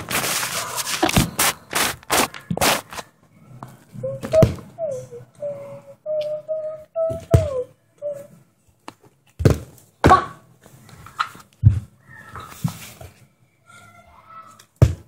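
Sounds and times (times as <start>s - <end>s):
person humming: 4.0s - 8.3s.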